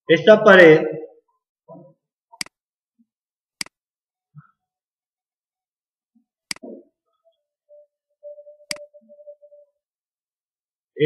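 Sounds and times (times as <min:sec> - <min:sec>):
computer mouse clicks: 0:08.7 - 0:08.9.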